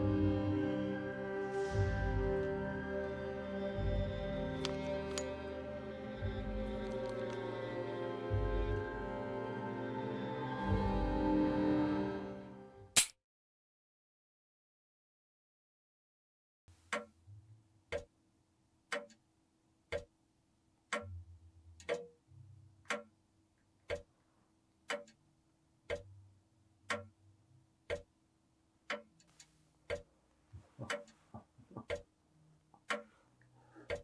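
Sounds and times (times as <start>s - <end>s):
clock ticking: 17.9s - 18.1s, 18.9s - 19.2s, 19.9s - 20.2s, 20.9s - 21.2s, 21.8s - 22.2s, 22.8s - 23.2s, 23.8s - 24.1s, 24.9s - 25.2s, 25.8s - 26.2s, 26.9s - 27.2s, 27.8s - 28.1s, 28.9s - 32.1s, 32.8s - 33.2s.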